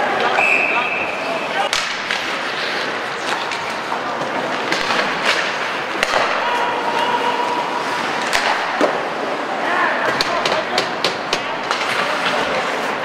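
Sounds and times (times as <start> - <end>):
rink background noise: 0.0 - 13.0
skates scraping on ice: 0.0 - 13.0
hockey sticks and puck knocking: 1.7 - 9.1, 10.0 - 13.0.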